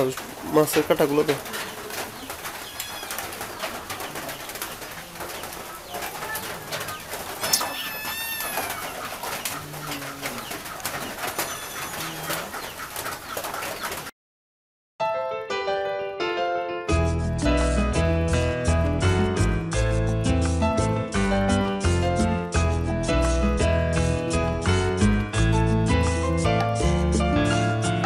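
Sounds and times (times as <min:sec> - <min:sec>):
bird cooing: 0:01.4 - 0:12.8
high bird call: 0:02.6 - 0:03.7, 0:05.7 - 0:10.6, 0:11.4 - 0:12.5
piano music: 0:15.0 - 0:28.0.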